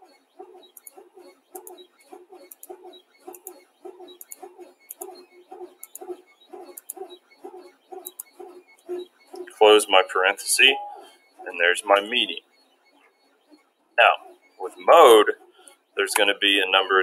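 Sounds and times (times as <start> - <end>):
computer mouse clicking: 0.5 - 9.6.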